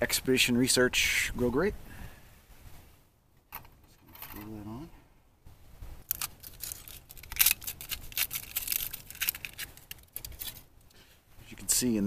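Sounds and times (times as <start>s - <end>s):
wrapping crinkling: 6.0s - 10.7s.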